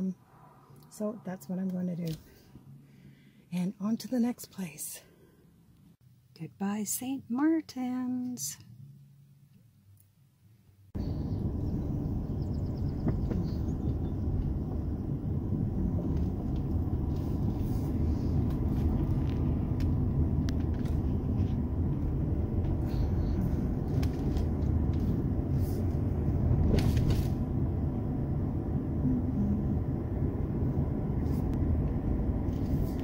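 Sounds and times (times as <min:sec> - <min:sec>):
car driving low rumble: 0:10.9 - 0:33.0.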